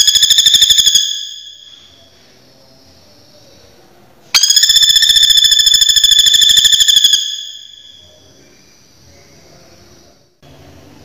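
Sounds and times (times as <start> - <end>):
woodpecker rattling trill: 0.0 - 1.9, 4.4 - 8.0.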